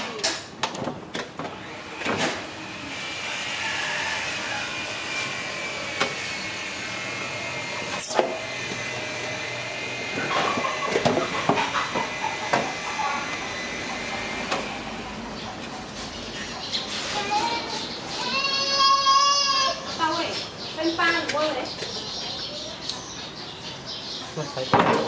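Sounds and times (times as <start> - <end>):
machine whirring: 1.4 - 18.4.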